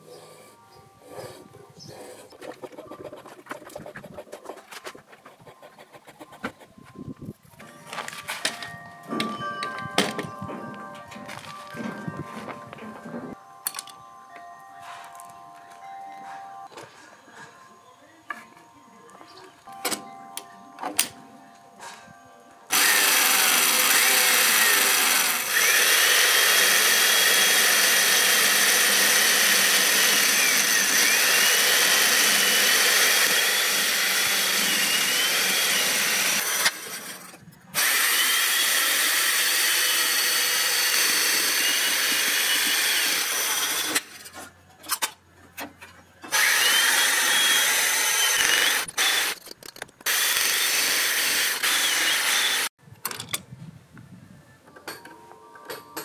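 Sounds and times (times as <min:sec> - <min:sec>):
chain mortiser whining: 0:22.7 - 0:44.3, 0:46.2 - 0:52.7.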